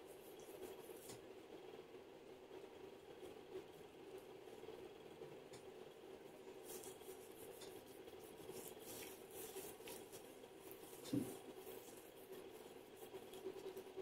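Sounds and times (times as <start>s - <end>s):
gloved hands rubbing skin: 6.6s - 14.0s.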